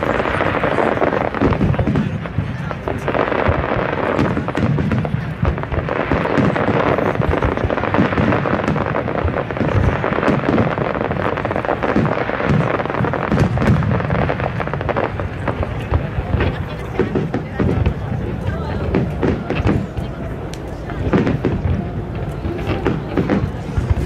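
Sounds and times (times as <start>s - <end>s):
fireworks bangs and crackling: 0.0s - 24.0s.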